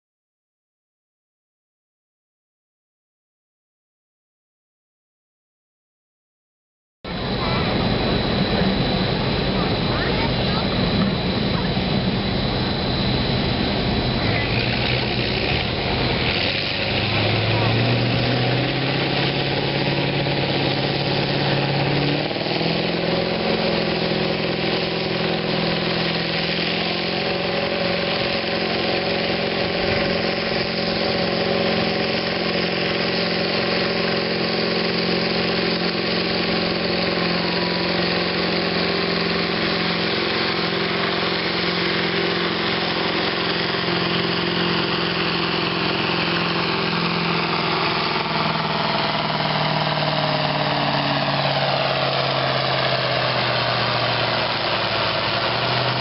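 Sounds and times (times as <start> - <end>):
diesel tractor engine under load: 7.2 - 56.0.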